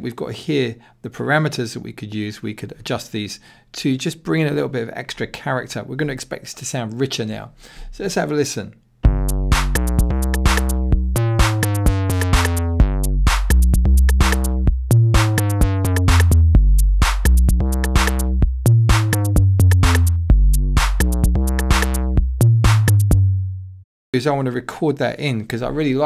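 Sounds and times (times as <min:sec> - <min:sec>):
drum machine ticks: 0:09.0 - 0:23.2
distorted kick drum bassline: 0:09.0 - 0:23.3.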